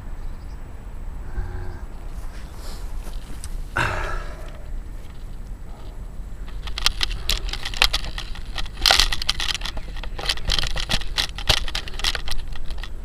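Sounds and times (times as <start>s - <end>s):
low wind rumble: 0.0s - 13.0s
grass crackling and rustling: 1.2s - 13.0s.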